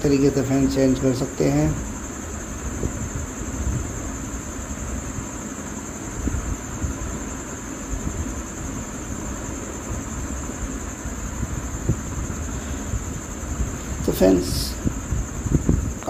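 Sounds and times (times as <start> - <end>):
high-pitched whine: 0.0 - 16.0
low rumble and hiss: 0.0 - 16.0.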